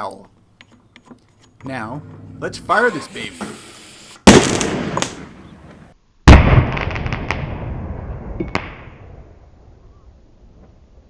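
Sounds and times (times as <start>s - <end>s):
crackling pops: 4.2s - 7.6s
mortar boom: 4.3s - 5.4s, 6.3s - 9.4s.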